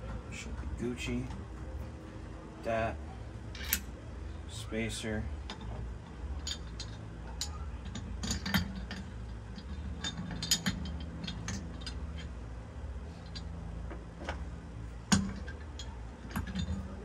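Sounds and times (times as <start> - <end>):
small metal parts clicking: 3.5 - 3.9, 5.5 - 12.4, 13.1 - 13.6, 14.9 - 17.0.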